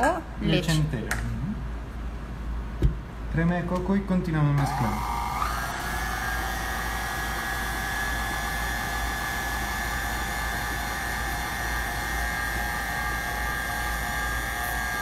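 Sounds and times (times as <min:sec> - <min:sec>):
stand mixer motor whining: 0:04.6 - 0:15.0.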